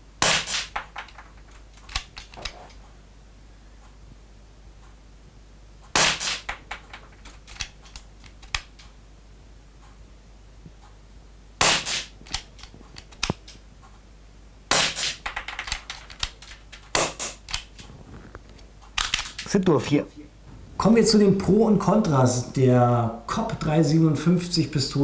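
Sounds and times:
airsoft pistol shots: 0:00.2 - 0:01.0, 0:05.9 - 0:06.8, 0:11.6 - 0:12.2, 0:14.7 - 0:15.8, 0:16.9 - 0:17.5
small clicks: 0:01.0 - 0:02.8, 0:06.5 - 0:09.0, 0:12.2 - 0:14.0.

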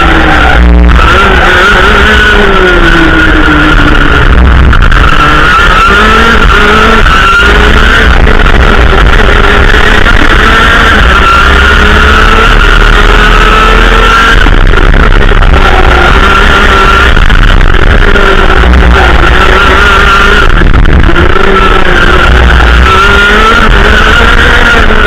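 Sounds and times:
kart engine at full throttle: 0:00.0 - 0:25.0
wind rumble on microphone: 0:14.4 - 0:25.0.

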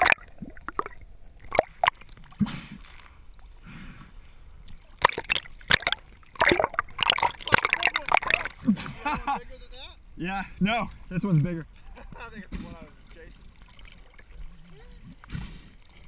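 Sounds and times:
sea water splashing: 0:00.0 - 0:09.3, 0:10.9 - 0:16.0.

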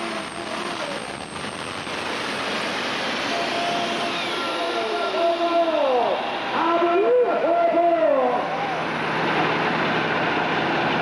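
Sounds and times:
tractor engine running flat out: 0:00.0 - 0:11.0.

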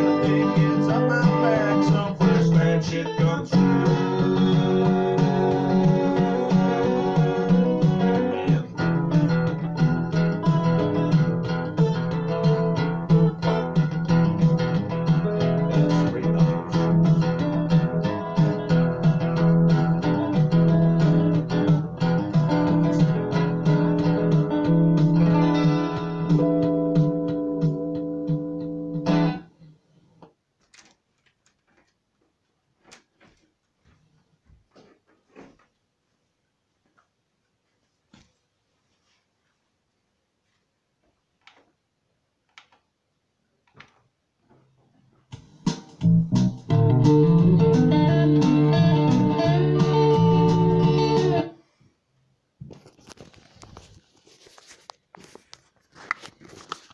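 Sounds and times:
guitar song: 0:00.0 - 0:29.6, 0:45.3 - 0:51.6
faint rustling: 0:30.0 - 0:41.7, 0:52.6 - 0:56.9.

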